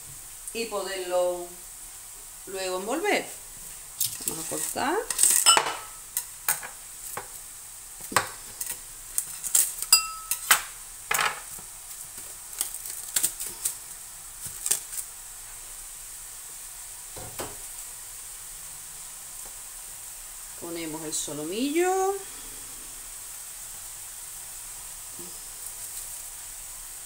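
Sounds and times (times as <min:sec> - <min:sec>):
mushrooms sizzling in frying pan: 0:00.0 - 0:27.0
cling film crinkling: 0:03.7 - 0:05.5, 0:08.0 - 0:10.0, 0:11.5 - 0:15.2.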